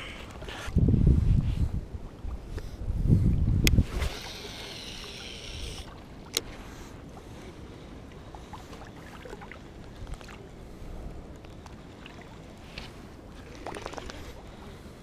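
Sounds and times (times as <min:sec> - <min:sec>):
wind rumble on microphone: 0:00.0 - 0:06.2
water lapping: 0:03.8 - 0:15.0.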